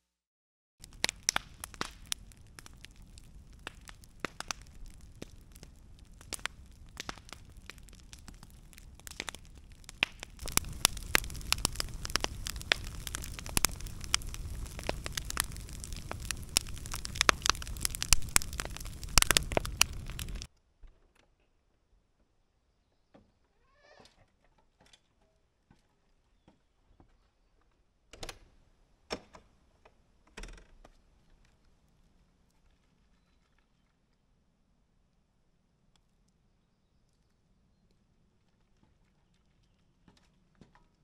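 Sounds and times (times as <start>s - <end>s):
campfire crackling and popping: 0.8s - 20.5s
rush of flames: 0.8s - 20.5s.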